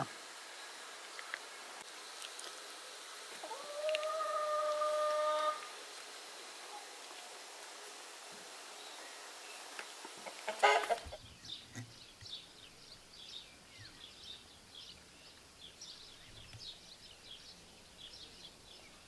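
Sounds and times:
small birds chirping: 0:08.7 - 0:19.0.

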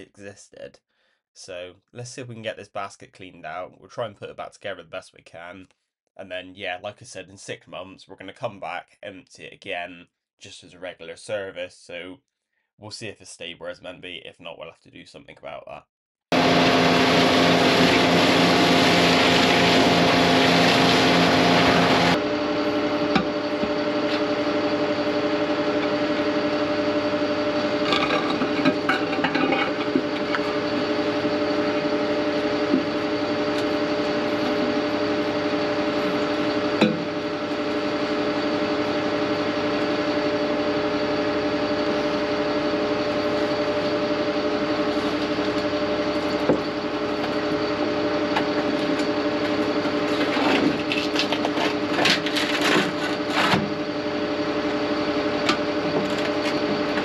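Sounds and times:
truck engine and pump droning: 0:16.3 - 0:57.0
metal clanks and knocks: 0:27.8 - 0:30.8.

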